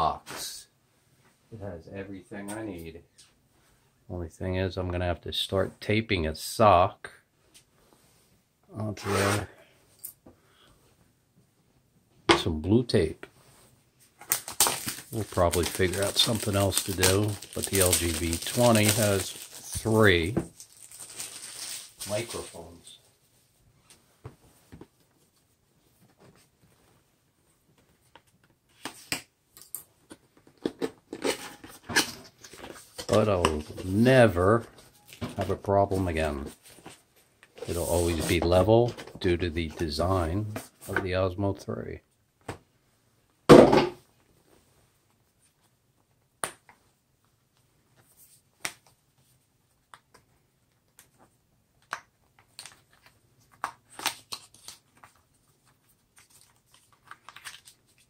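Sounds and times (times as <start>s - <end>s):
cardboard and plastic rustling: 14.0s - 22.9s
handling clicks and crinkles: 14.2s - 22.6s, 51.8s - 58.0s.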